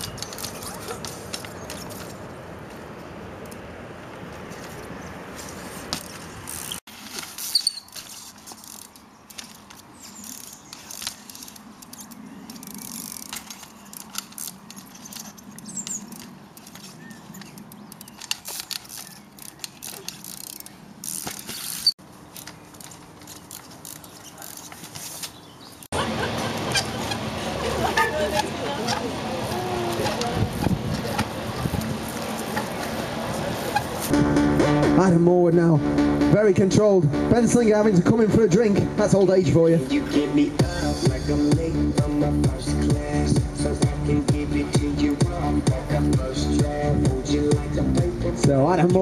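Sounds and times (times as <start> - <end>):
bike tyres and frame knocking: 0.0 - 2.8, 4.1 - 25.7, 26.4 - 34.2
brake and tyre squeaks: 0.0 - 34.2
freewheel ratchet clicks: 10.2 - 16.8, 17.4 - 22.5.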